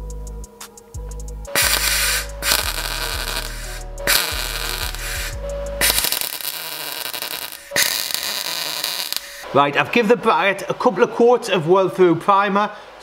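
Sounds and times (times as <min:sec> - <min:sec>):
background music with low beat: 0:00.0 - 0:06.6
aerosol can spraying: 0:01.5 - 0:06.3.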